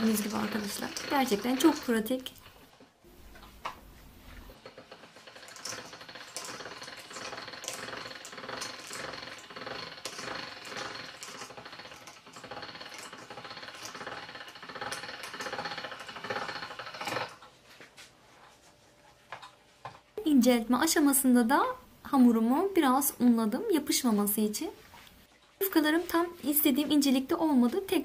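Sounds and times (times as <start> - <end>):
pasta machine cranking: 0.0 - 3.5, 4.4 - 17.5.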